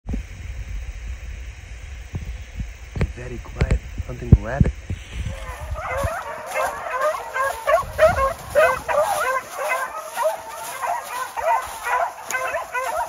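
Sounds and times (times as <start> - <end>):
dogs yelping and barking: 5.3 - 13.0.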